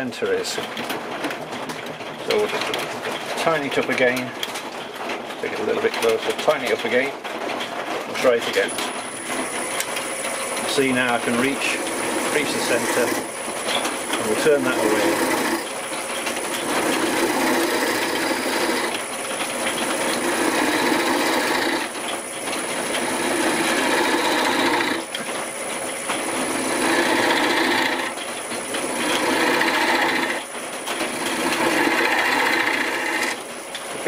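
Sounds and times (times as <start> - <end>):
chisel cutting wood on lathe: 10.5 - 15.7, 16.4 - 25.3, 26.1 - 33.4.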